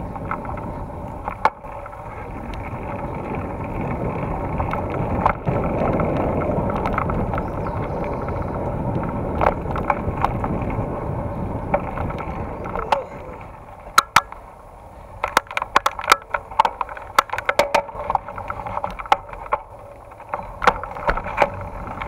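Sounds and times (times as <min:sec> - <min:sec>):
bike rattling: 0:00.0 - 0:22.0
tyres rumbling on dirt trail: 0:00.0 - 0:22.0
wind on camera: 0:00.0 - 0:22.0
sharp knocks over bumps: 0:13.9 - 0:14.4, 0:15.2 - 0:22.0.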